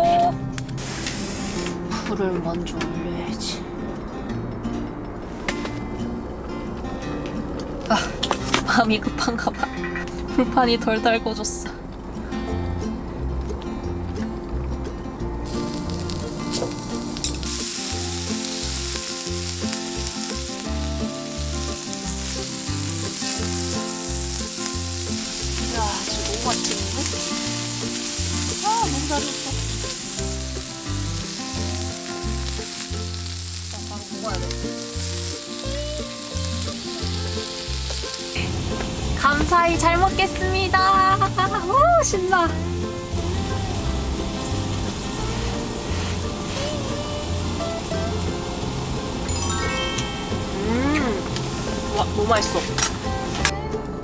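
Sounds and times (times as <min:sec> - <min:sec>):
beef sizzling on hot plate: 0:00.7 - 0:01.8, 0:15.4 - 0:53.1.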